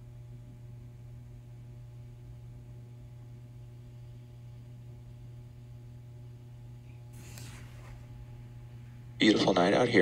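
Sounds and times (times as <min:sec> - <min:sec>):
steady low hum: 0:00.0 - 0:10.0
light hiss: 0:06.8 - 0:08.8.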